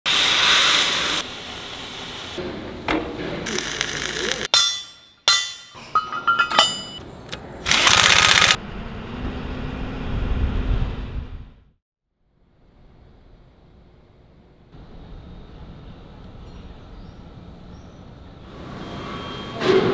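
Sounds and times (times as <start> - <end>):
cutting torch hissing: 0.1 - 2.4
metal knocks and clinks: 4.6 - 7.0
low rumble: 8.6 - 11.7.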